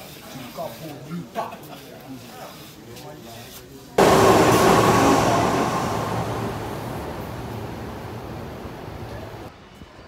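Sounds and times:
train rushing past: 0:04.0 - 0:09.5.

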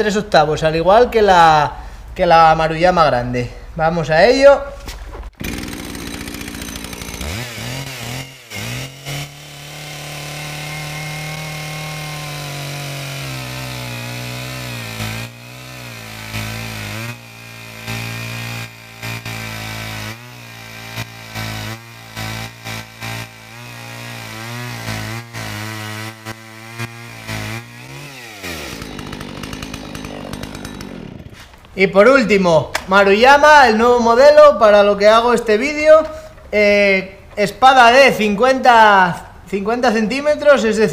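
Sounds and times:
chainsaw cutting log: 0:05.4 - 0:31.8.

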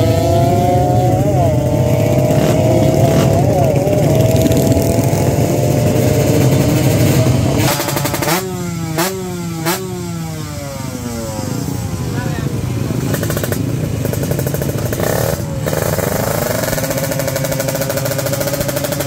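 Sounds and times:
motorcycle throttle blips: 0:00.0 - 0:11.6
motorcycle engines at high revs: 0:00.0 - 0:19.0.

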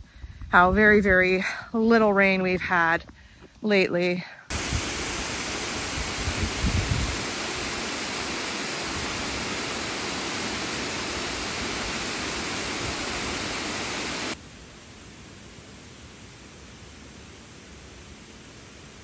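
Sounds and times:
waterfall rushing: 0:04.5 - 0:14.4
wind buffeting microphone: 0:04.5 - 0:14.4.

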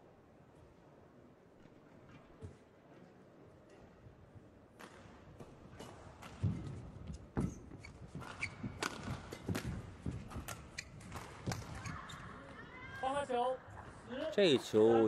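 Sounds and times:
shoes thudding and squeaking on court: 0:05.8 - 0:12.3
rackets hitting shuttlecock: 0:08.2 - 0:11.9.

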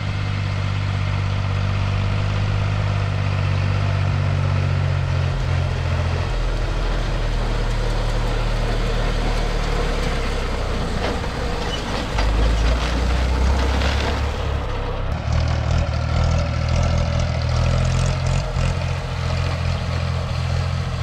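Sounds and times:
tractor engine running: 0:00.0 - 0:21.0.

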